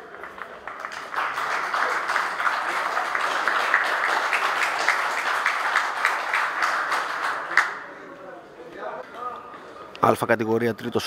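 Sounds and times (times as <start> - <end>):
crowd clapping: 0.0 - 8.0.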